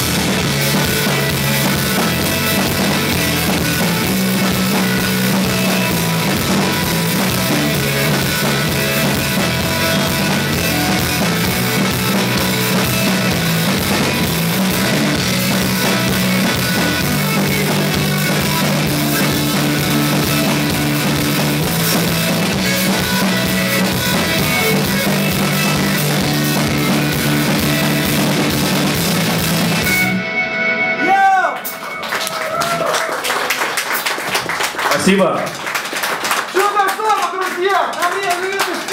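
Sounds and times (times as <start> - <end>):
drum kit with cymbal hits: 0.0 - 30.2
electric bass long low notes: 0.0 - 31.0
electric guitar: 0.0 - 34.6.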